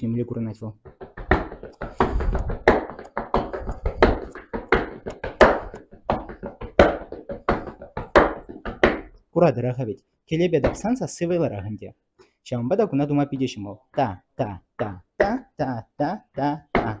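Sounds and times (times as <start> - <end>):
boots stamping on tiled floor: 0.8 - 9.2, 10.6 - 11.0.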